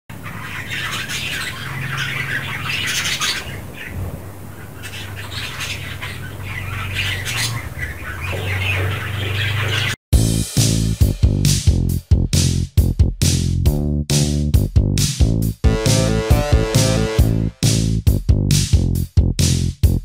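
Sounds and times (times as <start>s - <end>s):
budgerigar squawks: 0.1s - 10.0s
budgerigars chattering: 0.1s - 10.0s.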